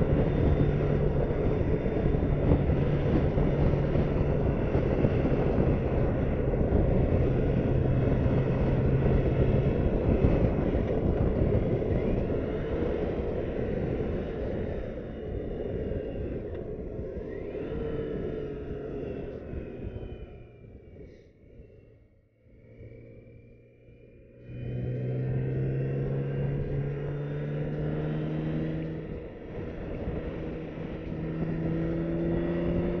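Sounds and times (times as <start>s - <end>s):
wind rush: 0.0s - 18.9s
motorcycle engine hum: 0.0s - 33.0s.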